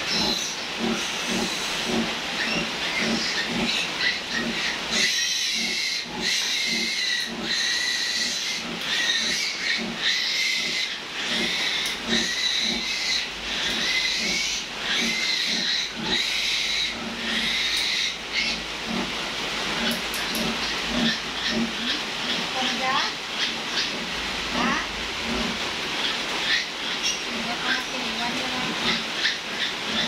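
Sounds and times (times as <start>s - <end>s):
piglet squealing: 0.1s - 1.8s, 2.4s - 18.6s, 20.6s - 24.0s, 24.6s - 24.9s, 28.9s - 30.0s.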